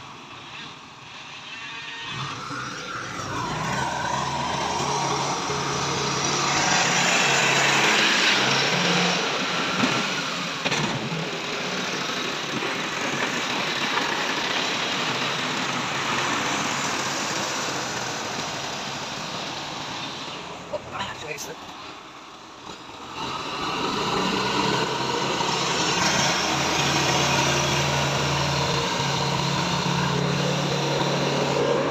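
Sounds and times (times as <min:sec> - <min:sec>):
tractor engine running: 0:02.4 - 0:20.9.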